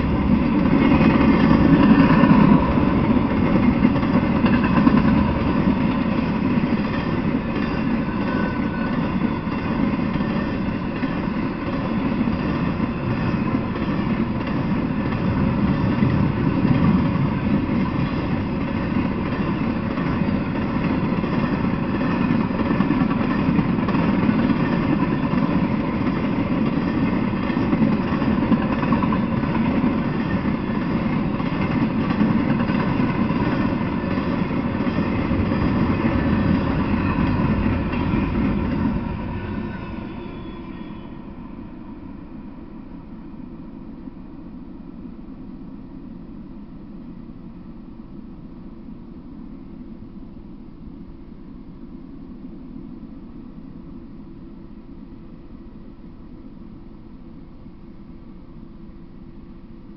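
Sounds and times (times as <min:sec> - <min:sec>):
steel wheels clattering on rails: 0:00.0 - 0:41.3
freight train rolling past: 0:00.0 - 0:57.5.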